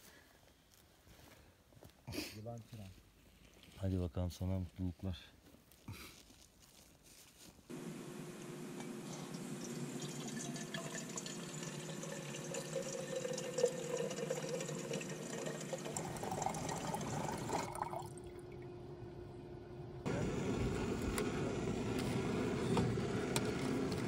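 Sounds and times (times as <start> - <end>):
water pouring: 9.0 - 18.7.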